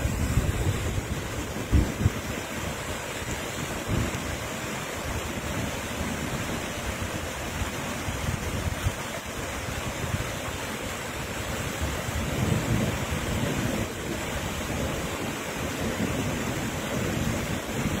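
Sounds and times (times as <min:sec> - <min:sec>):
floodwater rushing over rocks: 0:00.0 - 0:18.0
wind gusting on microphone: 0:00.0 - 0:18.0.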